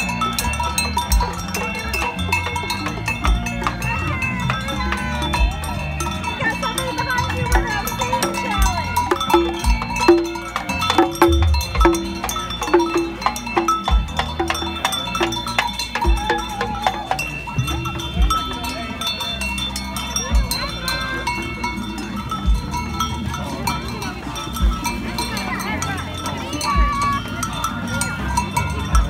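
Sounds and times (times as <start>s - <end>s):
cowbell struck in steady beat: 0.0s - 29.0s
crowd chatter: 0.0s - 29.0s
jingling clicks: 0.0s - 29.0s
deep drum thumps: 7.4s - 15.4s.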